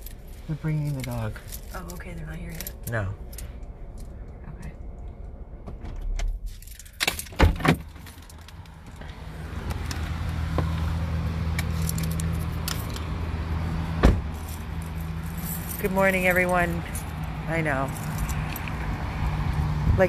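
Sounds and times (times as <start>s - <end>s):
keys jangling: 0.0s - 4.1s, 6.4s - 8.7s, 11.5s - 13.1s, 14.3s - 18.8s
steady low rumble: 0.0s - 6.9s.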